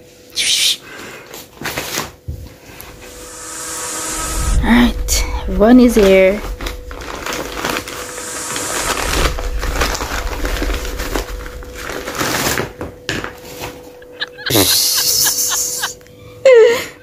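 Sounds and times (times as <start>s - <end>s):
loud hissing burst: 2.9s - 15.9s.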